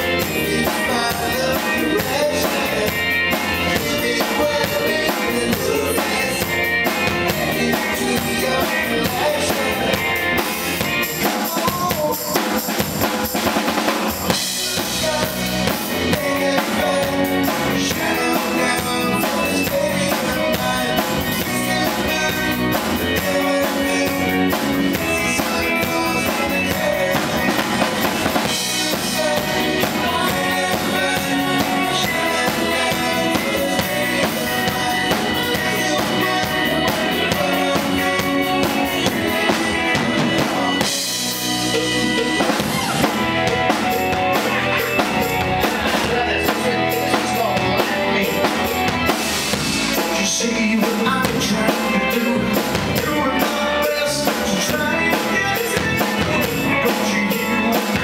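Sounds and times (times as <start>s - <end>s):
person singing: 0.0s - 49.1s, 49.9s - 58.0s
live rock band playing: 0.0s - 58.0s.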